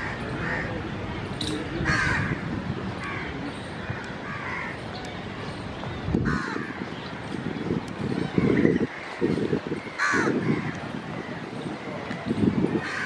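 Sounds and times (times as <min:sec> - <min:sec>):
crows cawing: 0:00.0 - 0:00.7, 0:01.8 - 0:02.4, 0:03.9 - 0:04.8, 0:06.2 - 0:06.8, 0:08.4 - 0:11.3, 0:12.8 - 0:13.0.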